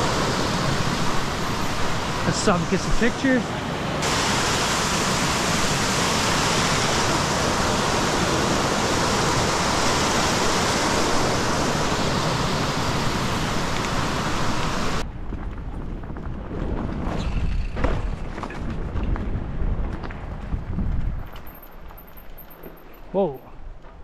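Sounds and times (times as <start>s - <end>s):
mountain creek water rushing: 0.0s - 15.0s.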